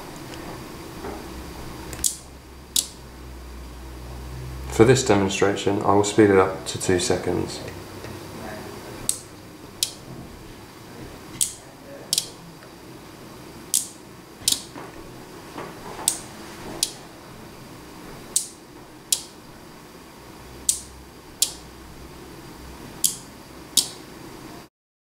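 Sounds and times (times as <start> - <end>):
receivers clicking in pairs: 2.8 - 3.0, 9.1 - 10.0, 11.4 - 12.4, 13.7 - 14.7, 18.3 - 19.4, 20.6 - 21.6, 23.0 - 24.0.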